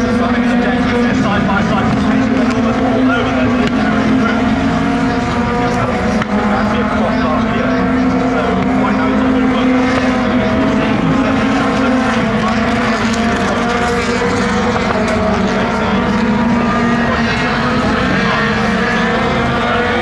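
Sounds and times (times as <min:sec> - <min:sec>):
racing car engines at high revs: 0:00.0 - 0:20.0.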